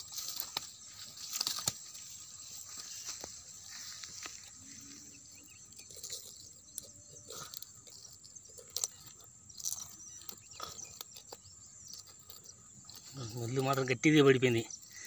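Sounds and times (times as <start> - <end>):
insect drone: 0.0 - 15.0
hands clicking and rustling: 0.1 - 2.0.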